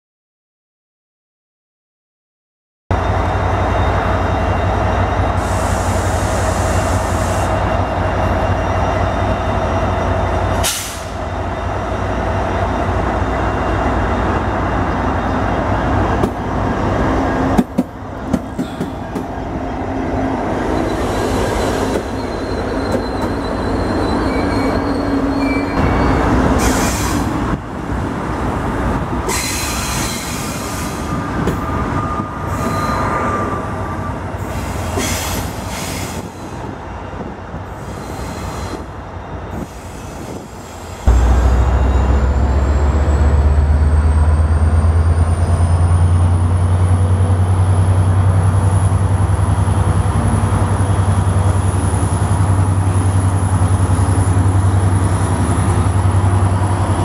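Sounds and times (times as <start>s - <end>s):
diesel locomotive rumbling: 2.9s - 57.0s
train cars rolling on rails: 3.0s - 57.0s
high wheel squeals: 20.6s - 27.3s, 29.3s - 36.8s.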